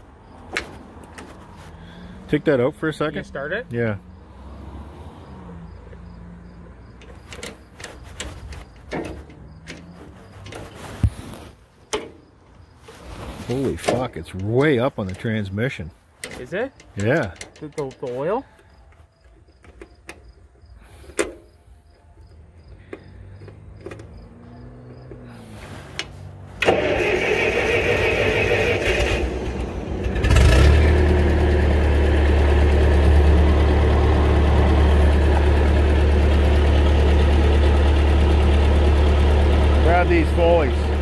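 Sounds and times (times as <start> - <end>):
tractor engine starting and idling: 5.8 - 19.0, 19.6 - 41.0.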